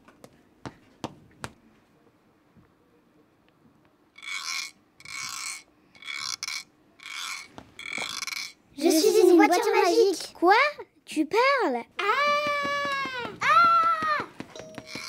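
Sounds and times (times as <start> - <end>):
rough scraping strokes: 4.2 - 8.6.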